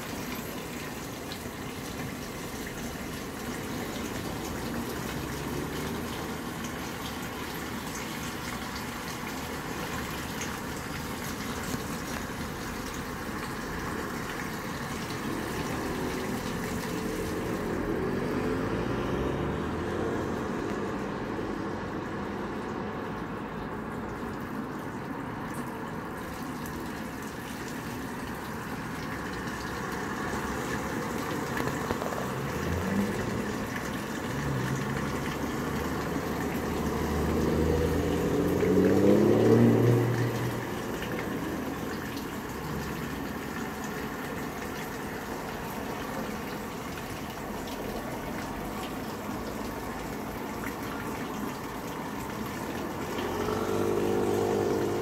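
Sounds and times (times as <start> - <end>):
running tap water: 0.0 - 55.0
passing vehicle engine: 2.9 - 7.3, 12.1 - 23.1, 28.8 - 45.9, 47.2 - 55.0.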